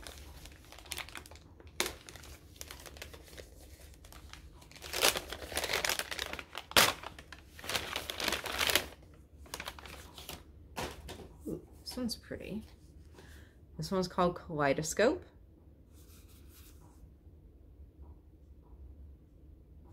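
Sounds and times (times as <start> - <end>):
gift wrapping crinkling and tearing: 0.0 - 11.1.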